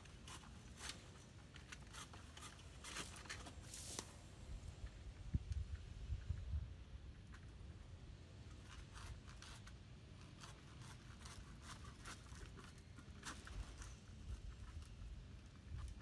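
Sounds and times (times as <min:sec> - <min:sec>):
dry crackling and rustling: 0:00.0 - 0:05.8
low wind rumble on microphone: 0:04.4 - 0:08.1.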